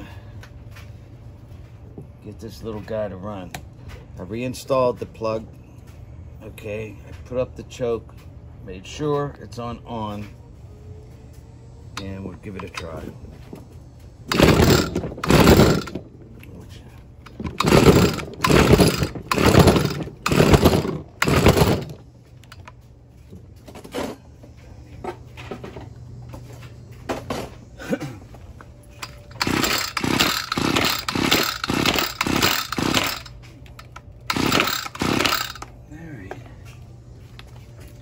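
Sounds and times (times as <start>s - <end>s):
recoil starter pulls: 14.3s - 16.2s, 17.2s - 22.8s, 29.0s - 35.7s.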